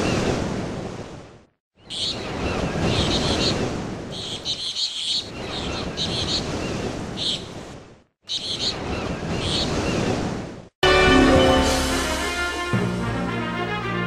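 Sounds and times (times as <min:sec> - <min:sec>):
wind: 0:00.0 - 0:14.0
birds chirping: 0:01.8 - 0:10.2
rushing water: 0:05.2 - 0:14.0.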